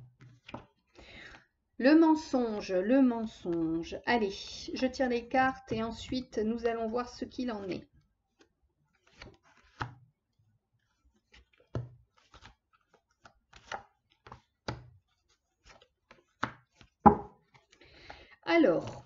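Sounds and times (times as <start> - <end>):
cards tapping on a table: 0.2 - 0.7, 9.7 - 10.0, 11.4 - 12.5, 15.7 - 17.6.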